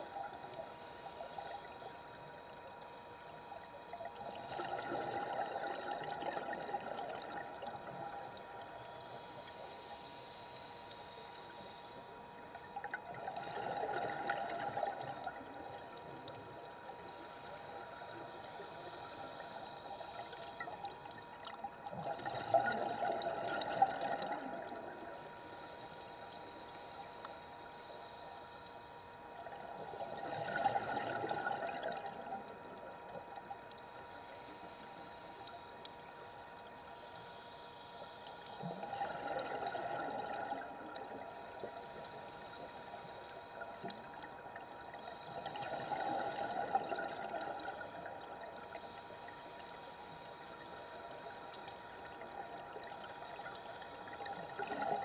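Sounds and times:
faint steady tone: 0.0s - 55.0s
scuba regulator exhaust bubbles: 4.1s - 8.6s, 12.8s - 16.6s, 20.0s - 25.3s, 29.4s - 33.4s, 38.6s - 41.7s, 43.5s - 48.7s, 54.1s - 55.0s.

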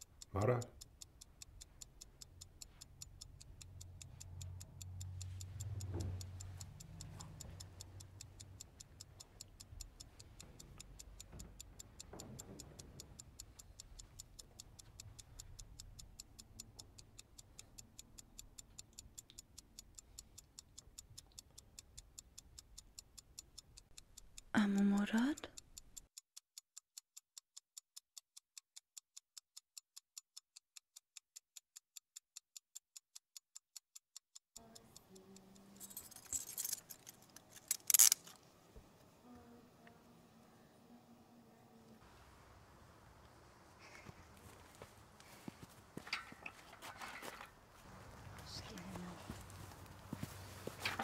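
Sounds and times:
clock ticking fast: 0.0s - 36.7s.

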